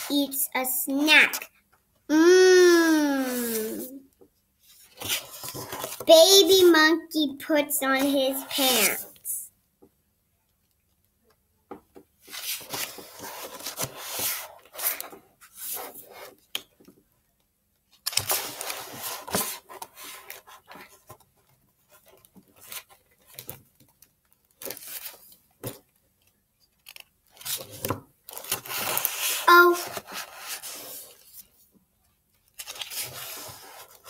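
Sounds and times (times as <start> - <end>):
book pages rustling: 3.1 - 4.0, 4.6 - 6.8, 12.2 - 17.0, 17.9 - 34.0.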